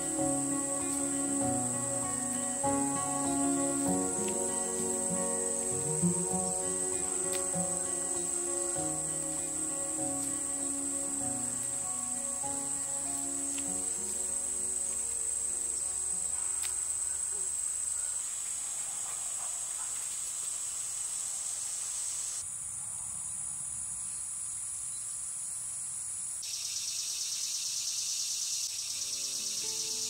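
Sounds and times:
insects singing in a high shrill: 0:00.0 - 0:18.3, 0:26.4 - 0:30.0.

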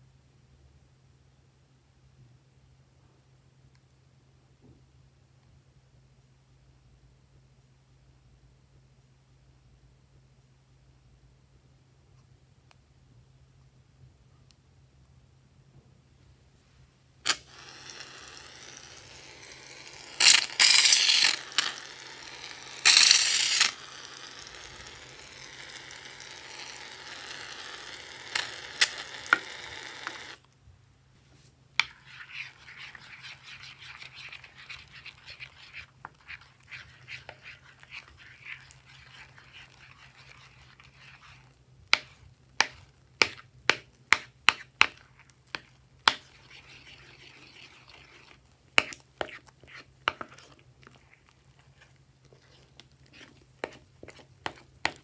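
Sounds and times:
fingers squishing foam: 0:31.8 - 0:55.0.

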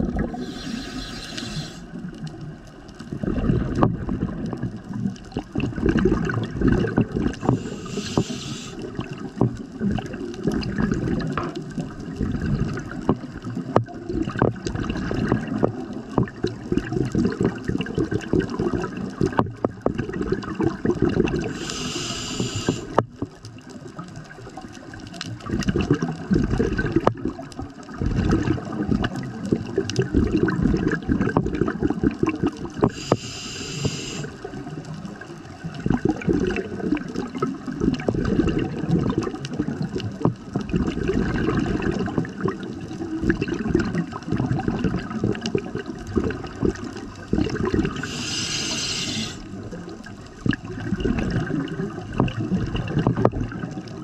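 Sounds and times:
regulator exhalation bubbling: 0:00.0 - 0:01.9, 0:07.3 - 0:09.0, 0:21.0 - 0:23.0, 0:32.8 - 0:34.4, 0:46.1 - 0:49.7
hissing regulator inhalation: 0:00.2 - 0:02.0, 0:07.4 - 0:08.9, 0:21.5 - 0:23.0, 0:32.9 - 0:34.4, 0:47.9 - 0:49.5.

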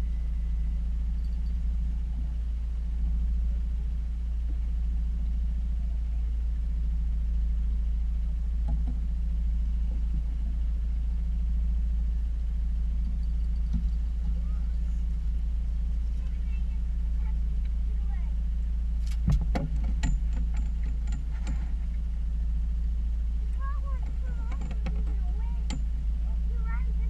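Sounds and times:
outboard motor running: 0:00.0 - 0:27.0.

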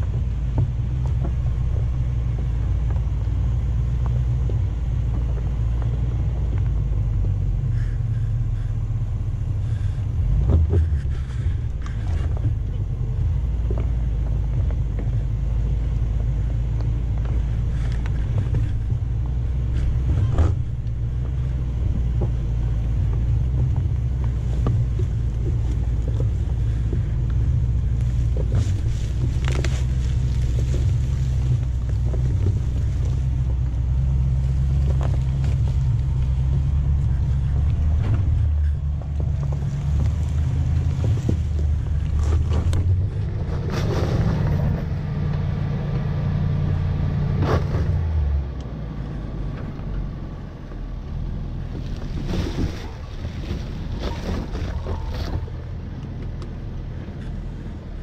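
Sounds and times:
engine low rumble: 0:00.0 - 0:58.0
tyres cracking over rocks and leaves: 0:23.6 - 0:43.8, 0:51.7 - 0:55.6.

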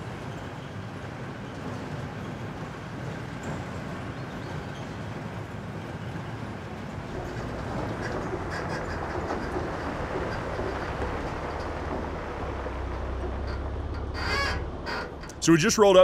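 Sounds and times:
engine and tyre road noise: 0:00.0 - 0:16.0.

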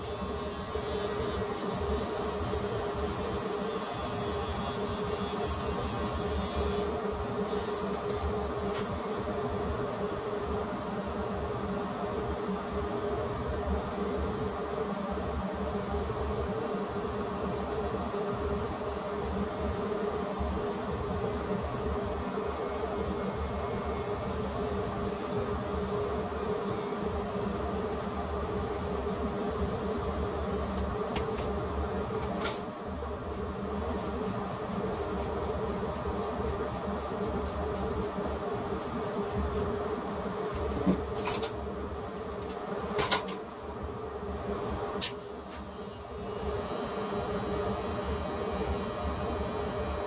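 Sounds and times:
electric hair clippers buzzing: 0:00.0 - 0:08.2.

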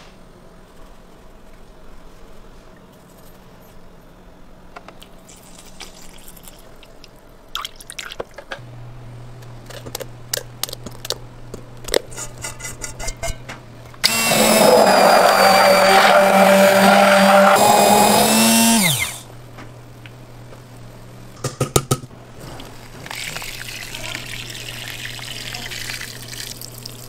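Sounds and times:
immersion blender running: 0:14.0 - 0:19.3.

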